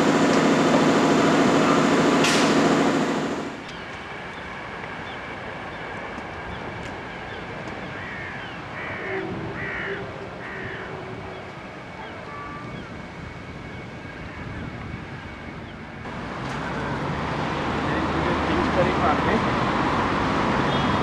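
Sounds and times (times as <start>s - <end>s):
wind noise: 3.8s - 16.1s
bird calling: 6.5s - 13.0s.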